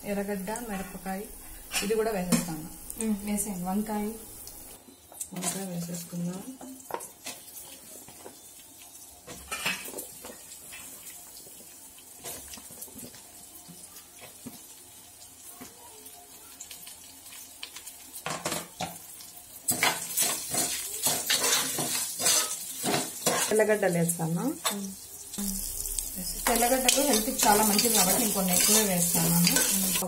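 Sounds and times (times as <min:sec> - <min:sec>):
food sizzling in oil: 0:00.0 - 0:30.0
spoon scraping a metal pot: 0:19.8 - 0:23.5, 0:26.8 - 0:30.0.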